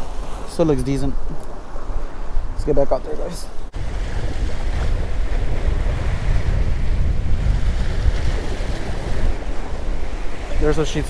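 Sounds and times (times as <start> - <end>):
wind buffeting microphone: 0.0 - 11.0
surf breaking against rocks: 3.8 - 11.0.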